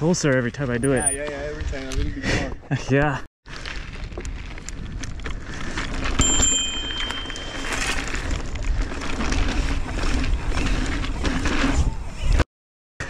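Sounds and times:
bike tyre noise: 3.5s - 12.4s.

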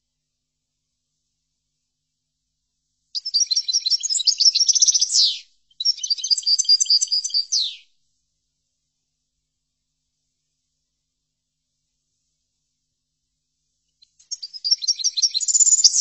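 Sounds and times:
goldfinch singing: 3.2s - 7.8s, 14.3s - 16.0s.

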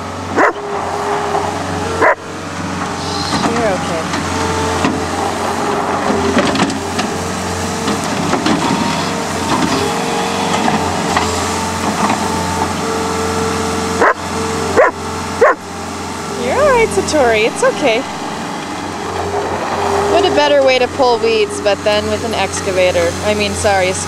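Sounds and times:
diesel engine under load: 0.0s - 24.0s
dog barking and whining: 0.3s - 0.7s, 1.8s - 2.3s, 14.0s - 15.7s.

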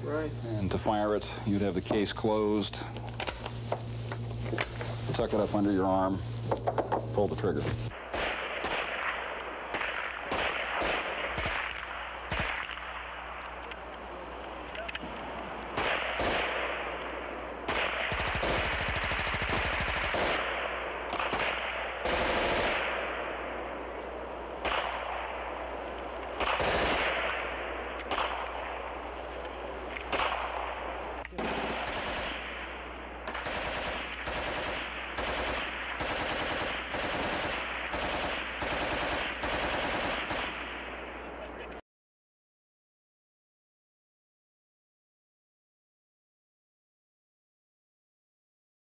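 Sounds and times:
machine gun fire: 7.9s - 13.4s, 15.6s - 41.0s.

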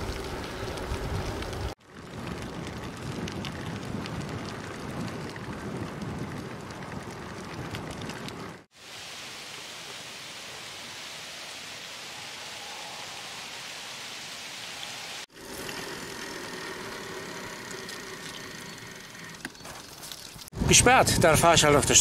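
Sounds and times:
bicycle tyres on paved path: 0.0s - 8.9s, 14.9s - 20.6s
stream water running: 6.8s - 20.6s.

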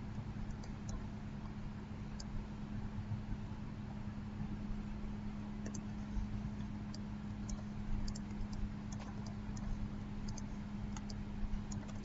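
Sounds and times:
low electrical hum: 0.0s - 12.0s
computer mouse clicks: 0.5s - 1.0s, 5.6s - 12.0s.

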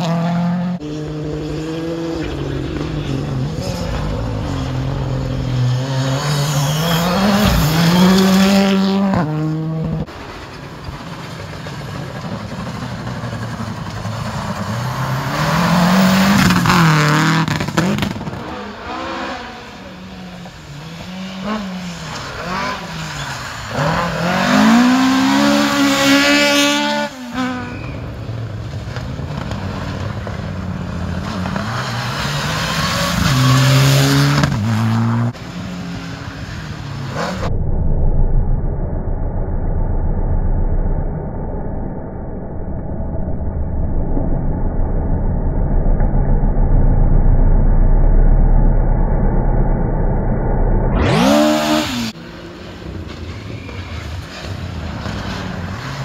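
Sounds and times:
rally car engine revving: 0.0s - 10.2s, 12.2s - 37.5s, 50.9s - 56.0s.

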